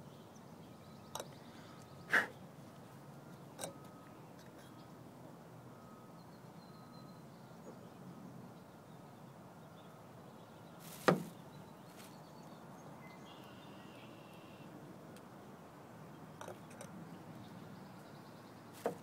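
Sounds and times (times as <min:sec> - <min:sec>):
sharp knock: 0:11.0 - 0:11.3.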